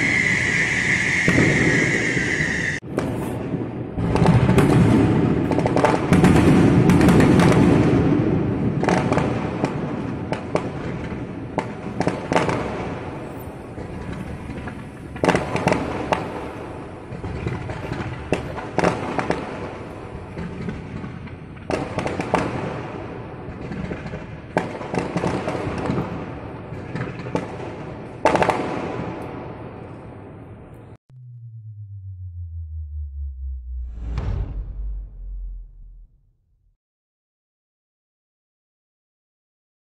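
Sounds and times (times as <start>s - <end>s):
fireworks bangs and booms: 0.0s - 30.6s.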